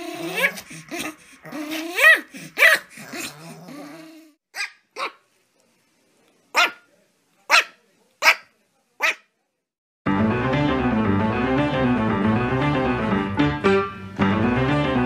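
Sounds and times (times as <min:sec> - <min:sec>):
dog growling: 0:00.0 - 0:04.4
dog barking: 0:02.0 - 0:03.4, 0:04.5 - 0:05.2, 0:06.5 - 0:06.9, 0:07.5 - 0:09.3
puppy yipping: 0:04.6 - 0:05.2.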